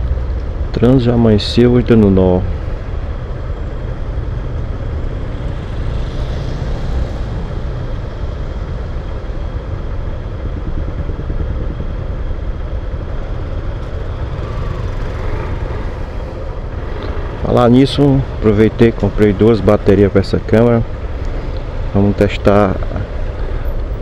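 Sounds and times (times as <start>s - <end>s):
traffic noise: 0.0s - 24.0s
motorcycle engine idling: 8.0s - 16.1s.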